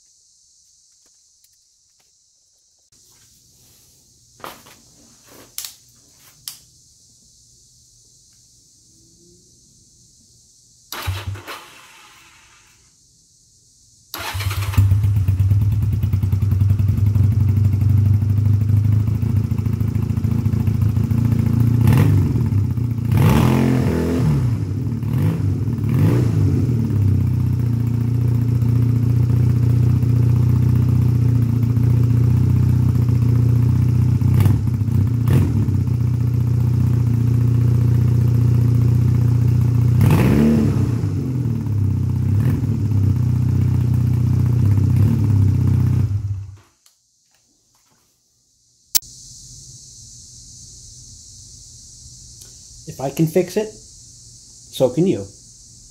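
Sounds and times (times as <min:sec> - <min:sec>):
motorcycle engine idling: 0:14.2 - 0:23.1, 0:26.8 - 0:40.0, 0:41.0 - 0:46.6
throttle blips revving engine: 0:21.2 - 0:27.6, 0:39.8 - 0:43.1.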